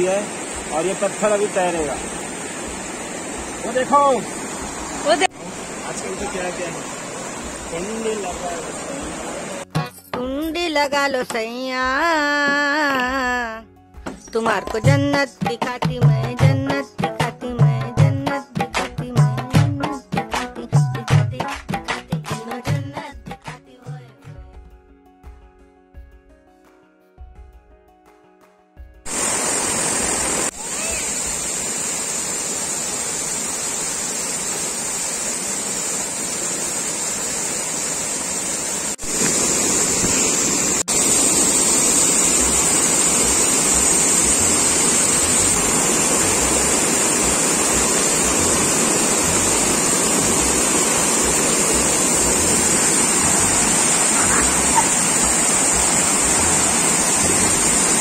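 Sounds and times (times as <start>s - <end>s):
river rushing: 0.0s - 9.6s, 29.1s - 58.0s
waterfall splashing onto people: 29.1s - 58.0s.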